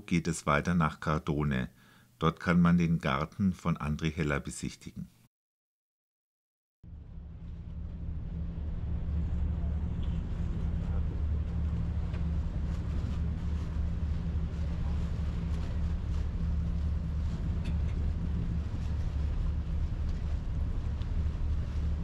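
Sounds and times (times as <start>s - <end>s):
ferry engine droning: 6.9s - 22.0s
wind on microphone: 7.6s - 22.0s.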